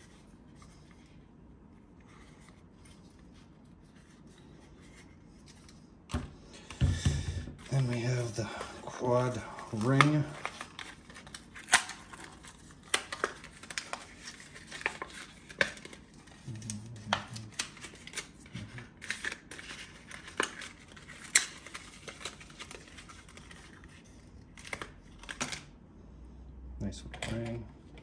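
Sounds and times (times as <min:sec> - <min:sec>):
plastic and cardboard crinkling: 0:07.5 - 0:25.7
packaging tearing: 0:09.0 - 0:25.7.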